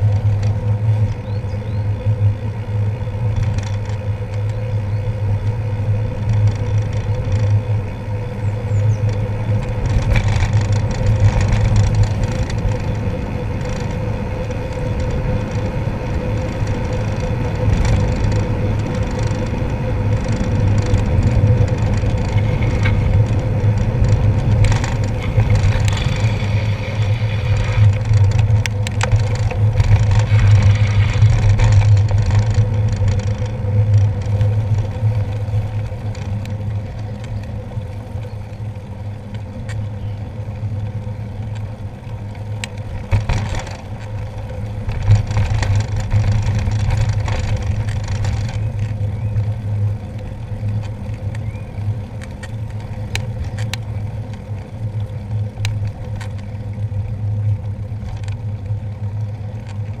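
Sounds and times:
bicycle rattles and clicks: 0.0 - 60.0
tyres rumbling on wet tarmac: 0.0 - 60.0
wind on microphone: 8.4 - 37.5.

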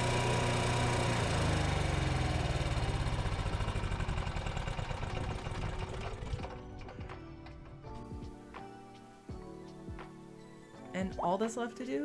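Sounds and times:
generator engine winding down: 0.0 - 8.0.

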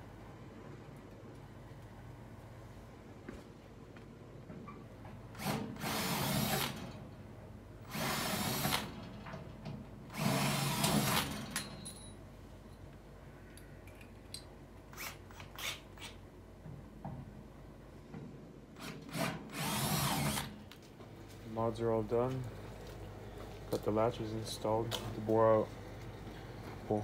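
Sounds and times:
drill boring into sheet steel: 5.4 - 6.8, 7.9 - 9.0, 10.1 - 11.4, 18.8 - 20.5.

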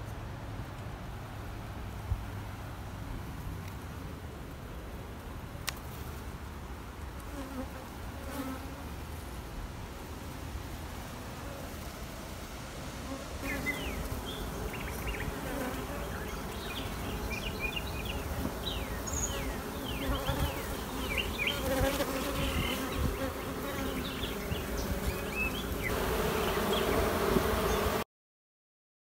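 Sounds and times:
honey bees buzzing: 13.0 - 28.0.

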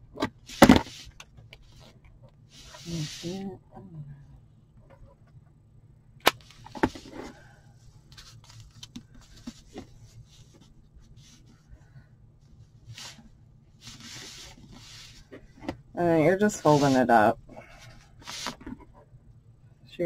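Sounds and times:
low steady hum: 0.0 - 20.0
felt rustling and scraping: 2.5 - 3.5, 12.7 - 15.6, 16.2 - 19.0.

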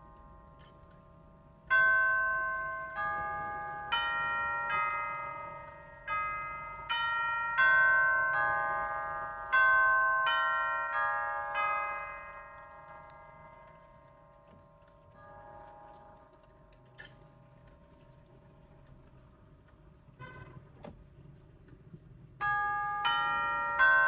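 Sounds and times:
clock tubular chimes ringing: 0.0 - 16.8, 22.4 - 24.0
faint clock movement clicks: 0.0 - 24.0.

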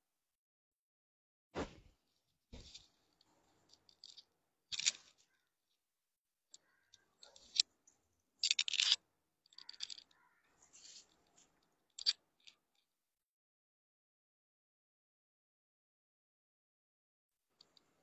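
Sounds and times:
dull thump: 1.6 - 1.9
cloth rustling: 1.6 - 3.9.

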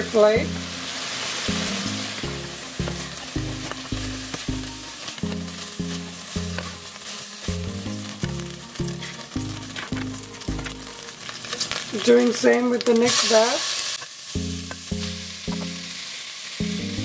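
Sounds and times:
meat sizzling in oil: 0.0 - 17.0
background music with bass beat: 1.5 - 6.8.

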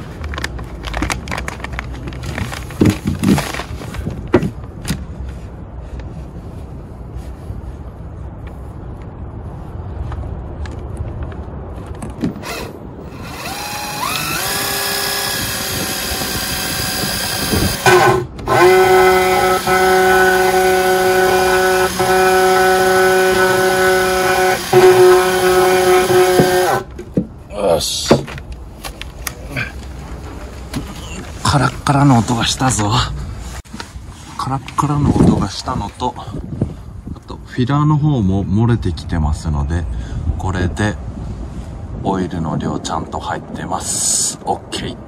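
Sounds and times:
drill motor whine: 12.4 - 26.8.

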